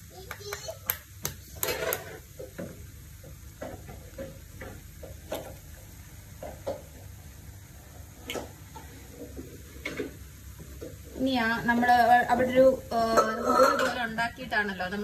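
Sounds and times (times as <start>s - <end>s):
faint sizzling: 0.0s - 15.0s.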